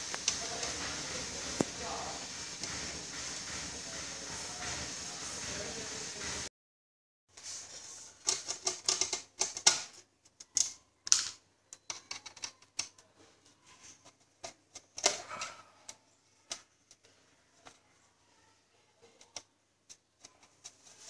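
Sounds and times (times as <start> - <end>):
screwdriver clicking and scraping metal: 8.2 - 13.0.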